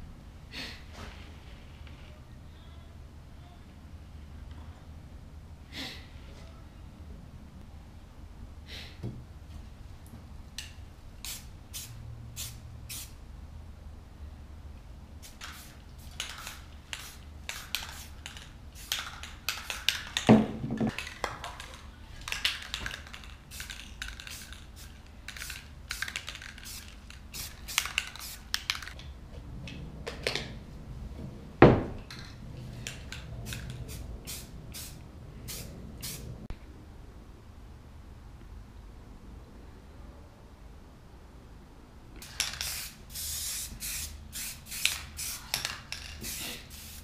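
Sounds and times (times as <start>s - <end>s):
spray paint cans hissing: 11.2s - 13.2s, 15.2s - 20.3s, 20.9s - 29.0s, 32.1s - 36.3s, 42.2s - 47.0s.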